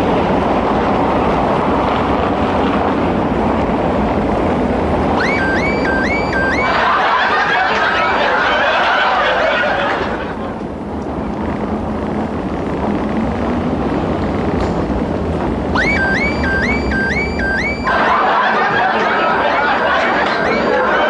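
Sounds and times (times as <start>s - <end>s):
steady background noise: 0.0s - 21.0s
laugh track chuckling: 6.6s - 10.6s, 17.8s - 21.0s.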